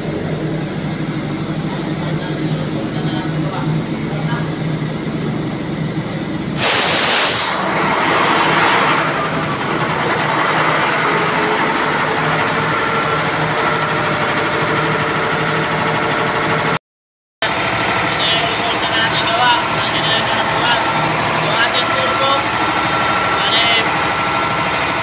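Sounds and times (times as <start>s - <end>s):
diesel generator engine running: 0.0s - 16.8s, 17.4s - 25.0s
hissing bursts: 6.6s - 9.0s.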